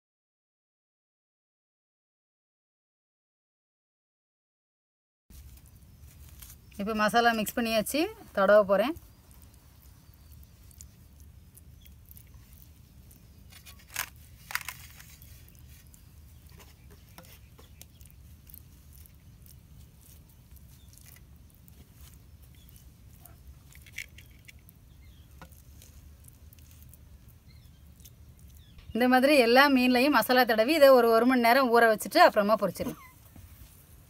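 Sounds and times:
hands squishing wet paste: 5.3s - 31.0s.

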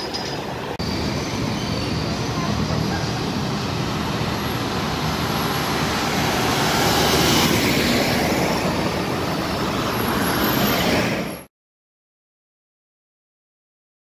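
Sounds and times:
cars driving past: 0.4s - 11.5s.

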